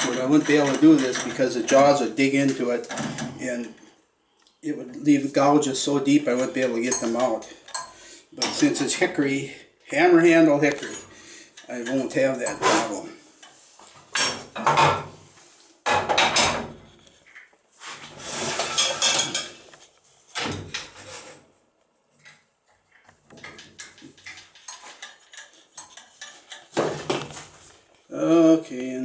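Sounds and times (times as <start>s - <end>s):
metal clanks and rattles: 0.0s - 3.4s, 15.8s - 17.4s, 18.4s - 19.7s, 20.3s - 21.2s, 22.2s - 27.6s
scraping rattle: 23.3s - 27.6s.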